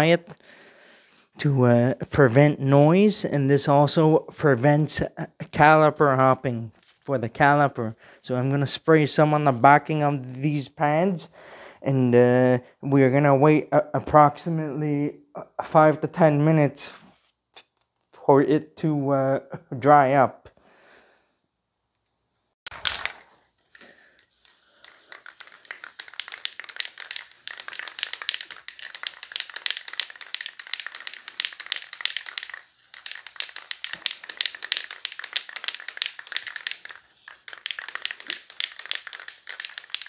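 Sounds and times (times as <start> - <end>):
aerosol spray hissing: 22.8 - 40.0.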